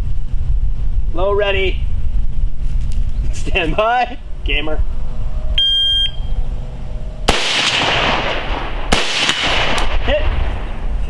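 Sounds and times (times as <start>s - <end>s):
shot timer beep: 5.6s - 6.4s.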